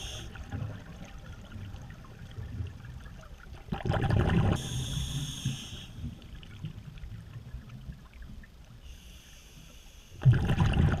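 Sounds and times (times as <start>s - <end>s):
regulator hissing inhalation: 0.0s - 0.3s
low underwater rumble: 0.3s - 5.2s
exhaled bubbles burst: 3.7s - 4.6s, 10.2s - 11.0s.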